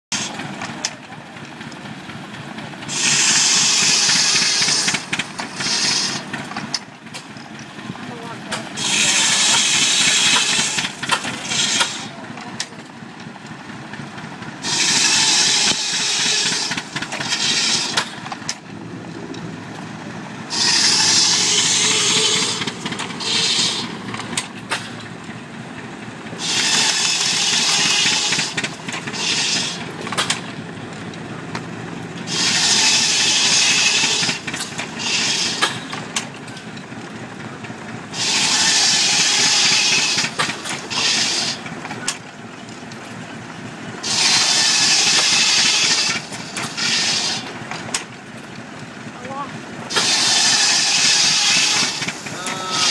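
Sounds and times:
machine and belt drive running: 0.1s - 52.9s
shorter scrapes: 2.9s - 6.4s, 20.5s - 25.0s
wood-shaving machine rasping: 2.9s - 6.7s, 8.7s - 12.2s, 14.6s - 18.1s, 20.5s - 24.0s, 26.4s - 30.2s, 32.3s - 35.9s, 38.2s - 42.0s, 44.0s - 47.6s, 49.9s - 52.9s.

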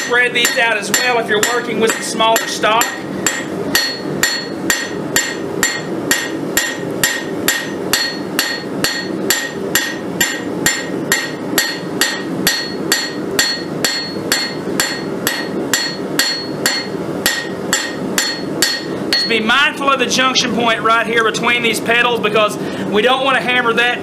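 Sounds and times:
hammer striking steel on anvil: 0.0s - 19.4s.

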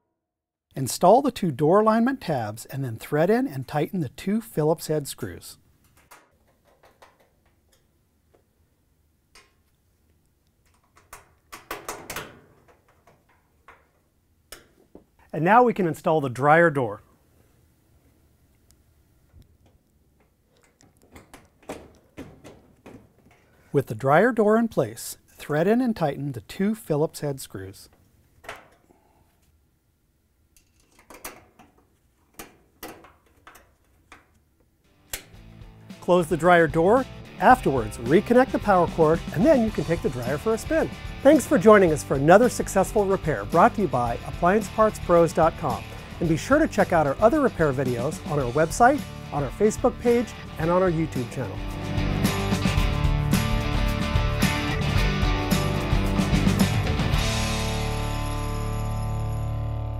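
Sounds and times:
screwdriver metallic clicks and scrapes: 30.6s - 31.4s
screwdriver clicking and scraping: 30.6s - 34.4s.

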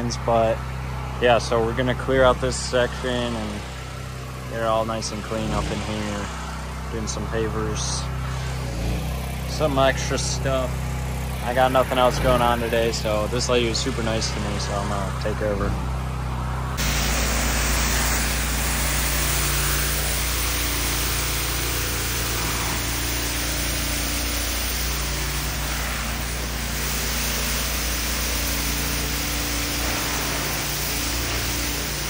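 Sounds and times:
pressure washer water hissing: 0.0s - 16.2s, 16.8s - 32.0s
low hum: 12.6s - 32.0s.

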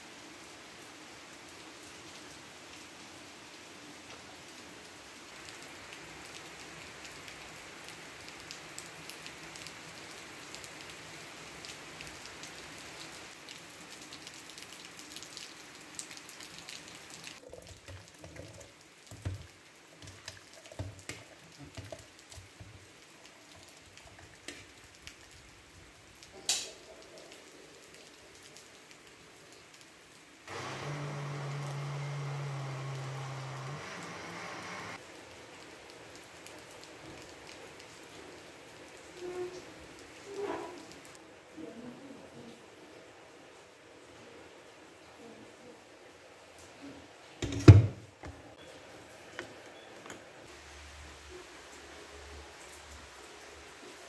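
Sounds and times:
rain on trees and grass: 0.0s - 47.5s, 48.2s - 54.0s
blender motor hum: 30.5s - 35.0s.

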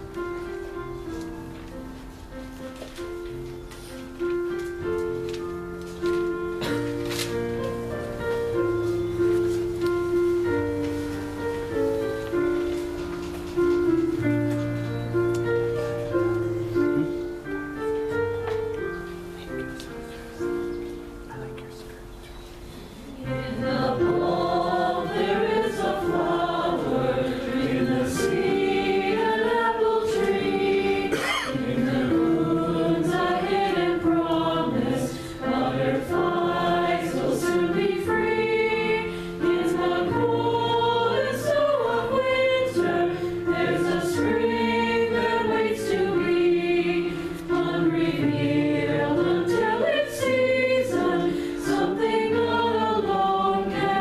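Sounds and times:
keyboard accompaniment: 0.0s - 54.0s
congregation singing a hymn: 22.9s - 54.0s.

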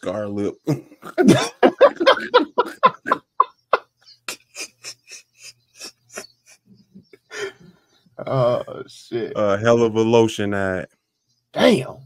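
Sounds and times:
men laughing: 0.7s - 8.7s.

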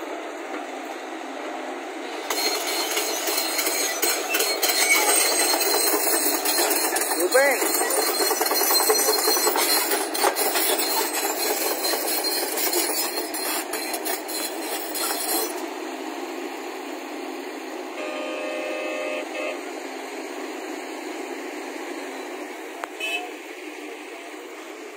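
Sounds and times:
steel tracks clattering: 0.0s - 21.5s
excavator diesel engine: 0.0s - 24.9s
brief steady tone: 18.0s - 19.7s.

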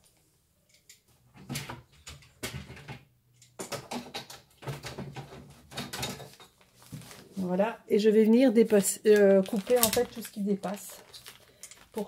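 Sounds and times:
paper pages rustling and tapping: 3.6s - 7.4s, 8.6s - 12.0s.

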